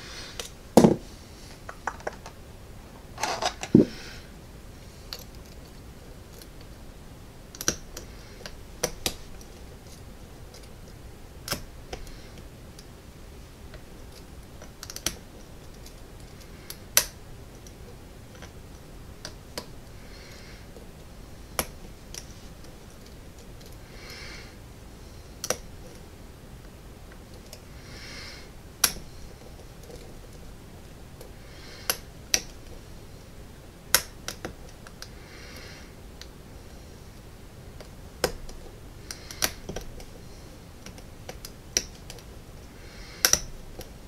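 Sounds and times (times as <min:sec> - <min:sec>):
lock pick clicking pins: 0:14.1 - 0:17.8, 0:25.4 - 0:26.0, 0:31.8 - 0:32.7, 0:37.8 - 0:40.1, 0:43.2 - 0:44.0.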